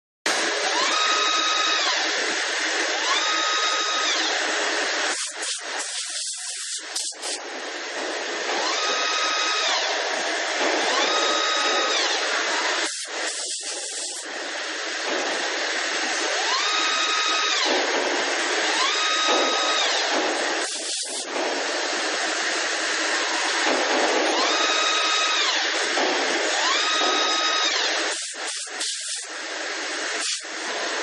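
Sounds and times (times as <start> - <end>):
coolant spray hiss: 5.1 - 7.4, 12.8 - 14.2, 20.6 - 21.3, 28.1 - 29.3, 30.2 - 30.5.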